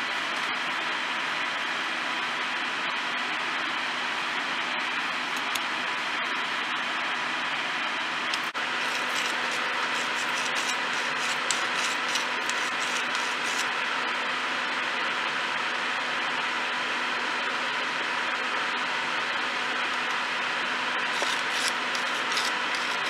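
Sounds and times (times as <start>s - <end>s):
hand file rasping on metal: 8.8s - 13.7s, 21.1s - 23.0s.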